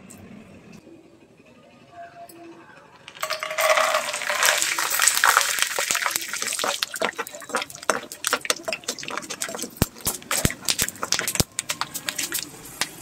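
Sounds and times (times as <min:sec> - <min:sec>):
clicks and pops of stirring: 0:03.1 - 0:13.0
peanuts sizzling in hot oil: 0:03.1 - 0:13.0.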